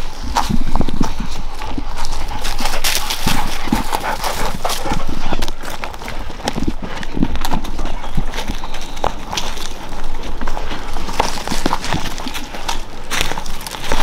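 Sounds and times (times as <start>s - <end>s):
footsteps walking: 0.0s - 14.0s
scuffing and rustling: 0.0s - 14.0s.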